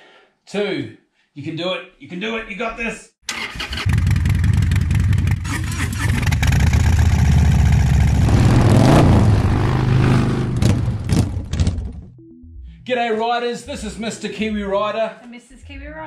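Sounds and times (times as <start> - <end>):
motorcycle engine revving: 3.6 - 11.6.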